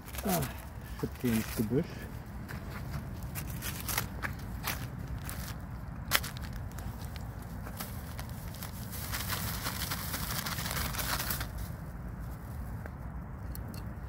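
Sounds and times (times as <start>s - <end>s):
rustling and crackling undergrowth: 0.0s - 14.0s
steady low rumble: 0.0s - 14.0s.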